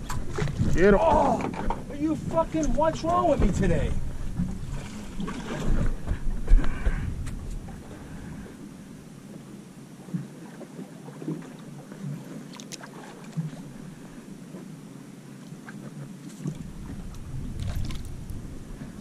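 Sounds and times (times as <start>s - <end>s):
wind rumble on microphone: 0.0s - 9.5s, 15.8s - 19.0s
water noise: 0.0s - 19.0s
wind: 0.0s - 19.0s.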